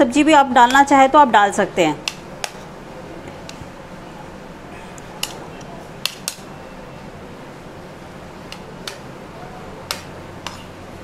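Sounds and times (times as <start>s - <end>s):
steady low hiss: 0.0s - 11.0s.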